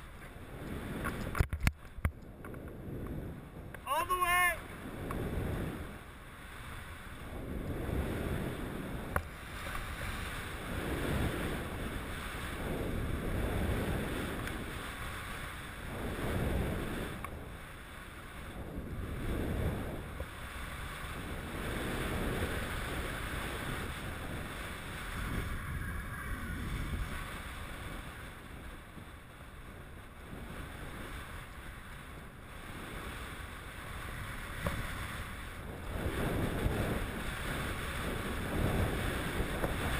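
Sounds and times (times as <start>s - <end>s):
wind rushing over microphone: 0.0s - 39.9s
skis hissing through snow: 6.4s - 29.0s.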